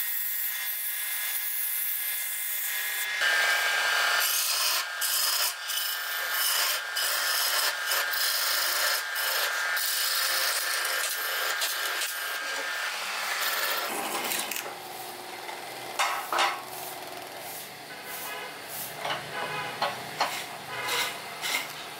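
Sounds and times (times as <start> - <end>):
tool scraping wood on a lathe: 4.2 - 14.7, 20.2 - 21.8.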